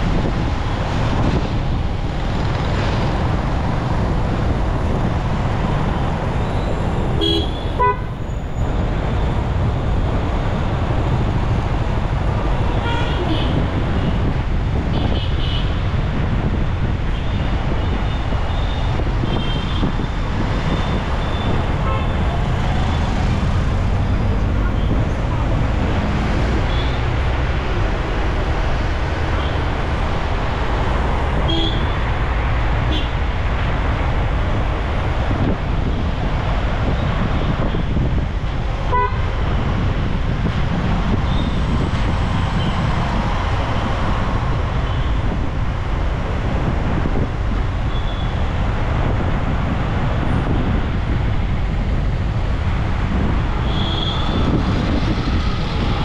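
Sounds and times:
city traffic noise: 0:00.0 - 0:56.0
vehicle horns tooting: 0:07.2 - 0:08.2, 0:38.9 - 0:39.3, 0:53.6 - 0:54.5.

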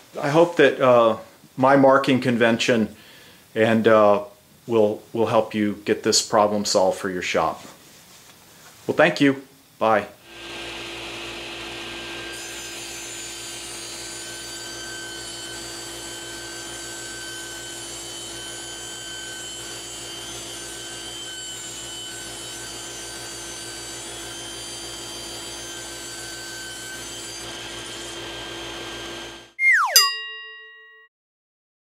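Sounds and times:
table saw cutting wood: 0:10.2 - 0:29.6.

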